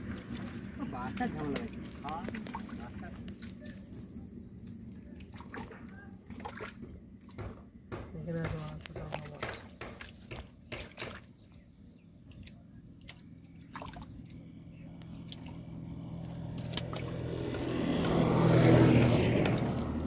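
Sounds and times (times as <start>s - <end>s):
engine hum: 0.0s - 20.0s
hands squelching in mud: 12.2s - 17.4s.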